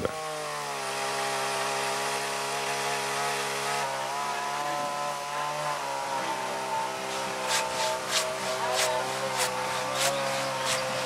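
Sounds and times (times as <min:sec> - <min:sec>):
chainsaw running: 0:00.0 - 0:11.0.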